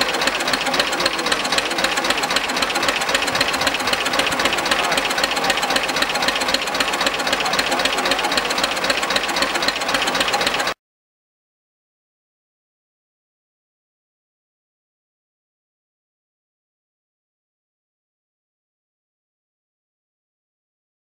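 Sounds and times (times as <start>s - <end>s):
tractor engine idling with knocking: 0.0s - 10.8s.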